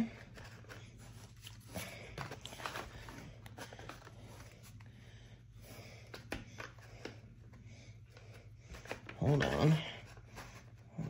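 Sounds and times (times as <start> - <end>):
cards rustling: 0.0 - 5.0.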